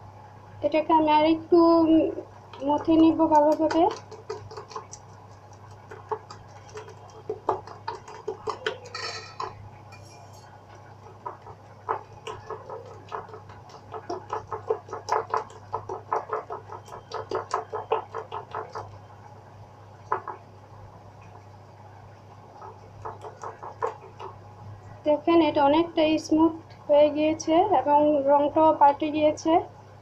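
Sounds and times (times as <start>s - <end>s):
spatula tapping a glass bowl: 2.5s - 19.0s, 20.1s - 20.4s, 22.6s - 24.4s.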